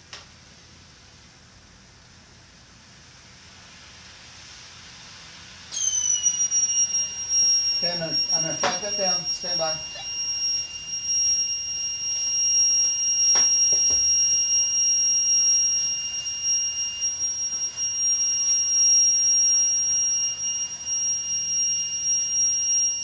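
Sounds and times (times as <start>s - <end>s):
faint hiss: 0.0s - 10.9s
high-pitched electronic alarm buzzer: 5.7s - 23.0s.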